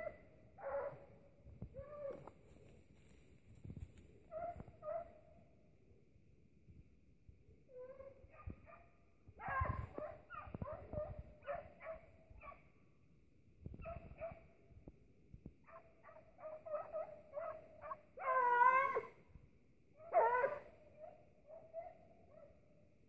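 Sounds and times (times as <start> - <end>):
dogs yelping: 0.0 - 1.0, 4.3 - 5.2, 9.4 - 12.6, 15.7 - 19.1, 20.0 - 22.5.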